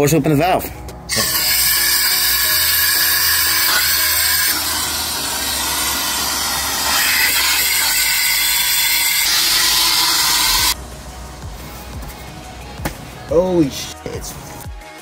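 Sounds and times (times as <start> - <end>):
gas hissing from valve: 1.1 - 10.8.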